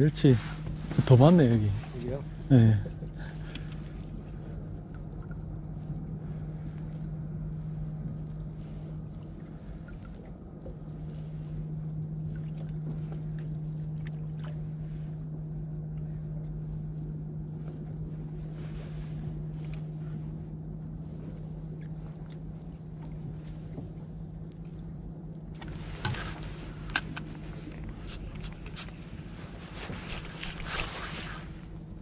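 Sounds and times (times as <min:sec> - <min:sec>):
boat engine idling: 0:00.0 - 0:32.0
faint clicks and knocks of gear: 0:02.0 - 0:08.6, 0:19.5 - 0:20.2, 0:20.9 - 0:31.9.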